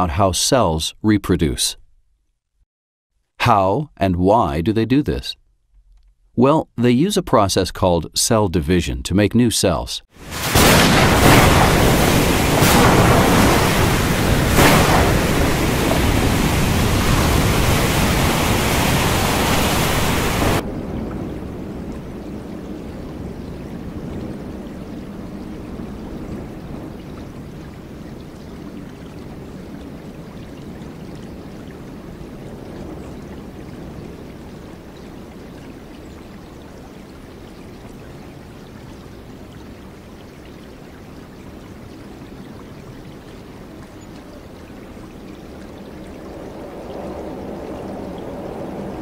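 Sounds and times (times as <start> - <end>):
waves breaking and washing in: 10.1 - 49.0.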